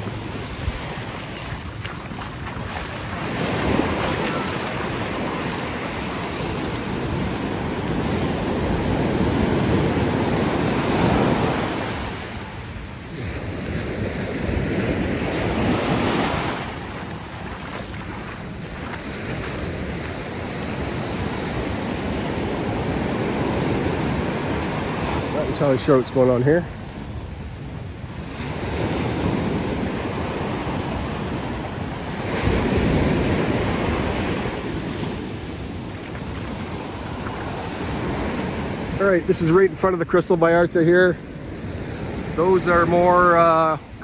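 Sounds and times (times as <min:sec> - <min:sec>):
wind buffeting microphone: 0:00.0 - 0:25.8
ocean surf breaking: 0:00.0 - 0:44.0.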